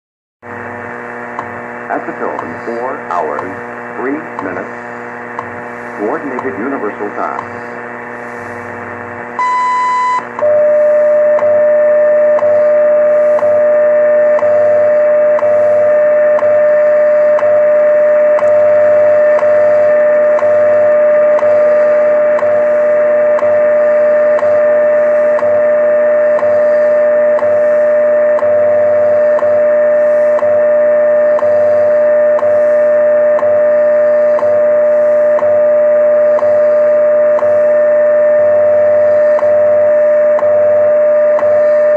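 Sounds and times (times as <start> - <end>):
radio static: 1.4 - 11.3
steady radio tone: 1.9 - 8.8, 9.4 - 41.9.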